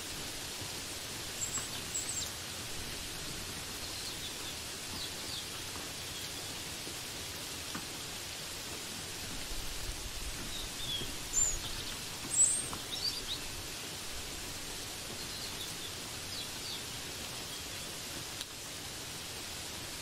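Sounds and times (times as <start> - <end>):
rain falling: 0.0 - 20.0.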